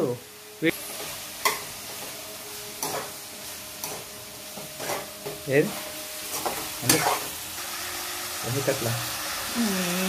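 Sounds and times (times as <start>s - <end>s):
frying sizzle: 0.0s - 10.0s
metal spatula scraping a pan: 0.9s - 7.4s.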